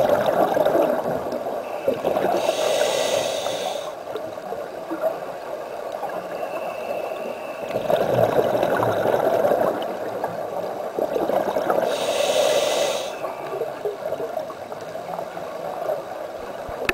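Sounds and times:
underwater exhaled bubbles: 0.0 - 16.9
regulator inhalation hiss: 1.7 - 4.0, 11.8 - 13.4.

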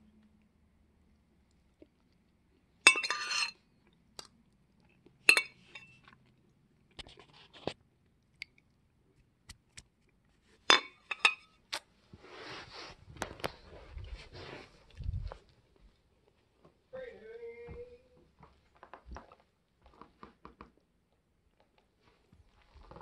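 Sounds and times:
metal fork clinking on plate: 2.9 - 3.6, 5.3 - 6.0, 10.7 - 11.5.

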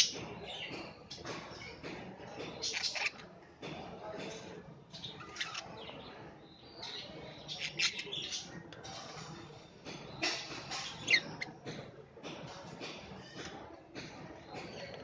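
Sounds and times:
budgerigars chirping: 2.6 - 3.2, 6.8 - 8.5.

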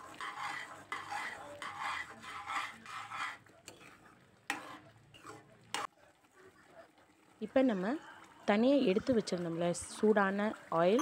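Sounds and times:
metal ladle stirring and scraping pan: 0.0 - 5.9.

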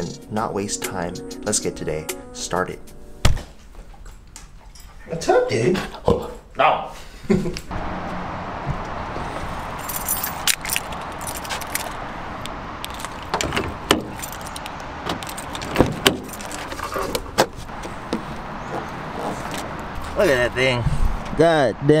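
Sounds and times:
outdoor background hiss: 0.0 - 22.0
keys jingling: 9.7 - 12.0, 12.8 - 17.4.

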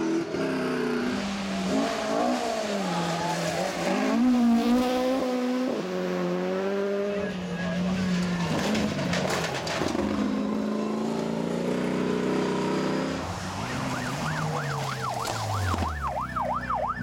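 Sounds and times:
rally car engines revving: 0.0 - 17.0
siren wailing: 13.3 - 17.0.

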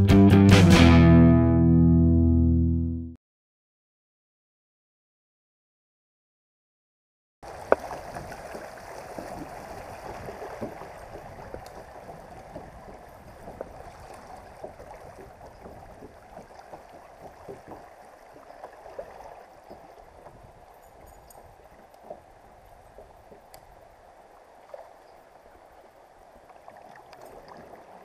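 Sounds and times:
river water rushing and babbling: 7.4 - 28.0.

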